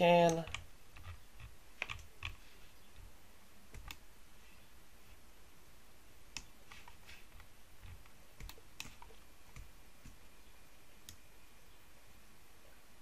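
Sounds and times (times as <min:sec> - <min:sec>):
mouse and keyboard clicks: 0:00.2 - 0:02.4, 0:03.7 - 0:04.0, 0:06.3 - 0:10.2.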